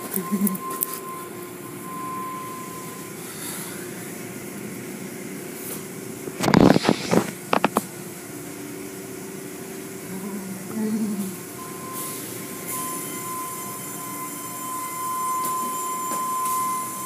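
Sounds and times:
car wash machinery humming: 0.0s - 17.0s
loud burst of noise: 6.0s - 7.8s.

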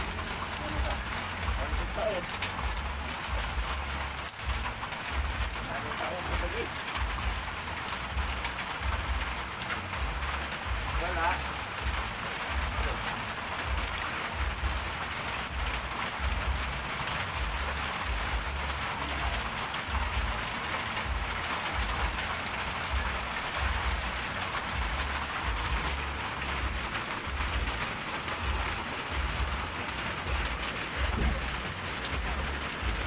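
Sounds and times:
rain falling: 0.0s - 33.0s
low rumbling bumps: 19.9s - 33.0s.

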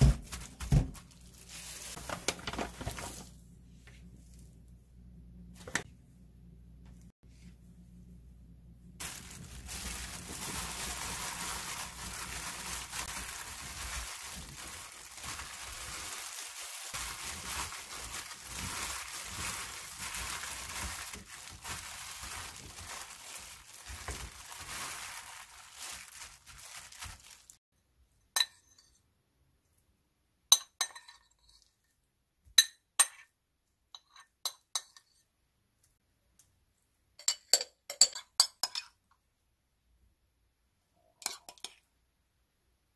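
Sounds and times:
plastic gloves crinkling: 0.0s - 3.4s, 9.0s - 27.6s
radish cubes rustling in bowl: 9.0s - 27.6s.

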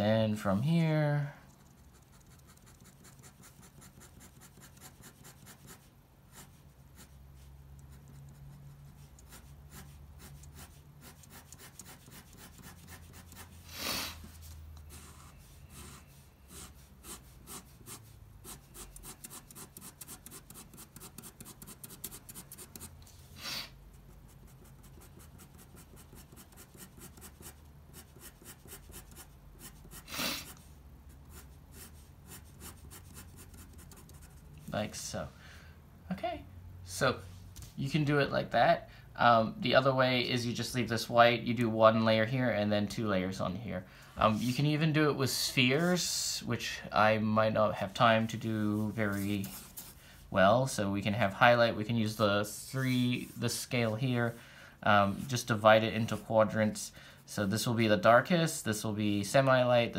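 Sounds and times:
pen scratching on paper: 1.6s - 7.2s, 7.8s - 13.7s, 14.3s - 23.0s, 23.9s - 34.5s
pen rubs on paper: 1.6s - 23.3s, 23.9s - 34.5s.

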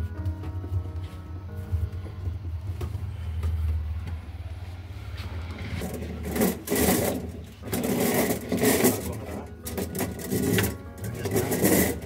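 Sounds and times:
metal tubing scraping and rattling: 5.6s - 12.0s.

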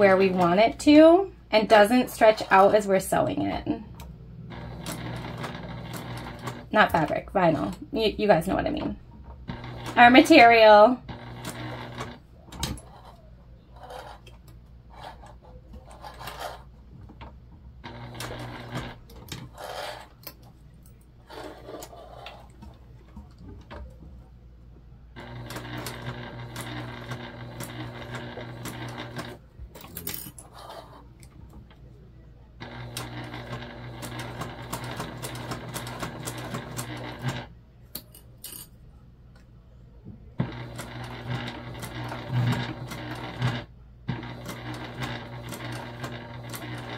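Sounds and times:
electric sewing machine running: 4.4s - 7.8s, 9.4s - 12.8s, 17.8s - 20.0s, 25.2s - 29.4s, 32.6s - 37.5s, 40.4s - 46.9s.

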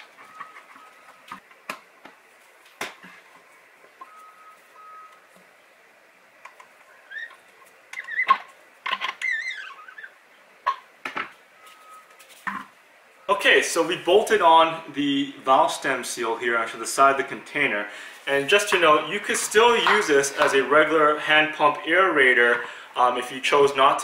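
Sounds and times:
short wavering squeak: 9.2s - 10.2s.

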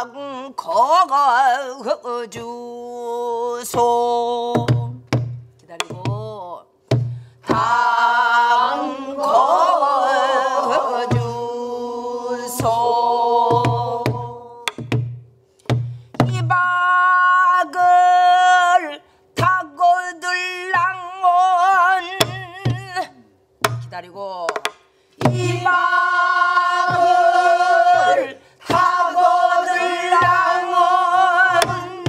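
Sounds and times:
barrel drum thumps: 4.6s - 7.8s, 13.5s - 16.5s, 23.6s - 26.0s, 26.7s - 29.2s, 30.1s - 30.6s, 31.5s - 32.0s
group of voices singing: 7.4s - 14.8s, 25.2s - 32.0s
drumstick clicks: 24.5s - 24.9s
woman singing long wavering notes: 31.1s - 32.0s.

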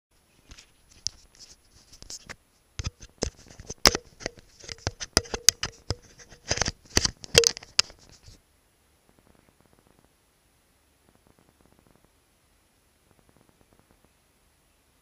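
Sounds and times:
rustling: 0.2s - 8.4s
camera handling clicks and knocks: 2.8s - 8.0s.

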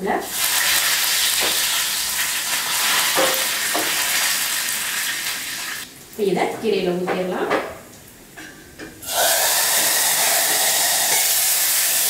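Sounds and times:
leaves sizzling in hot oil: 0.2s - 5.9s, 9.0s - 12.0s.

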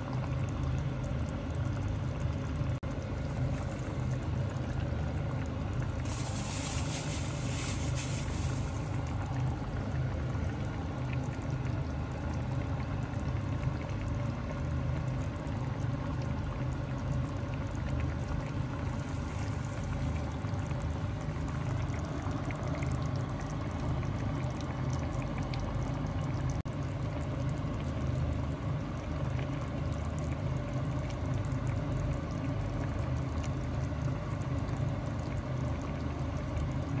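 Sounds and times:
running water hiss: 6.0s - 9.2s.

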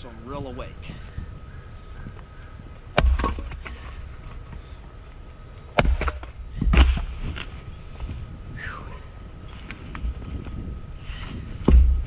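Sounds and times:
axe striking a log: 3.0s - 3.7s, 5.8s - 7.1s, 11.6s - 12.0s.

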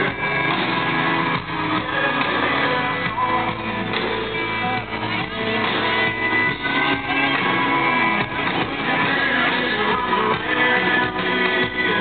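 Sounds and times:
live country band music: 0.0s - 12.0s
strummed guitars: 0.0s - 12.0s.

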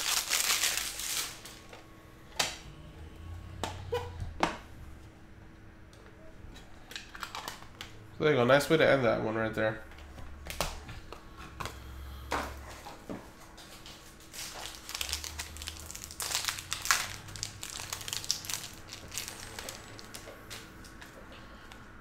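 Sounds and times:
packaging crinkling: 0.0s - 1.7s, 13.8s - 21.0s.

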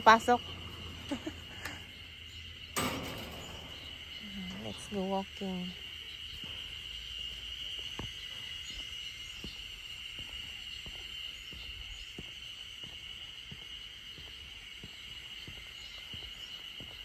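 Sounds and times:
insect chorus: 0.0s - 17.0s
footsteps on wooden boardwalk: 6.1s - 17.0s.

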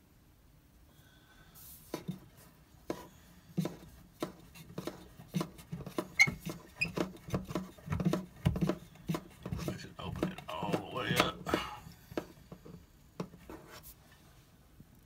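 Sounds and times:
phone bumping and brushing: 1.9s - 12.4s.

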